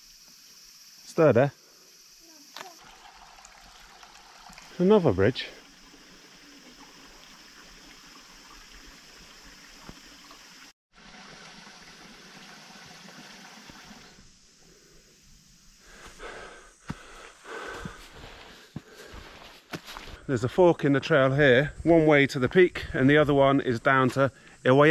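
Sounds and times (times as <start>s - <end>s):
footsteps scuffing on trail: 16.8s - 21.2s.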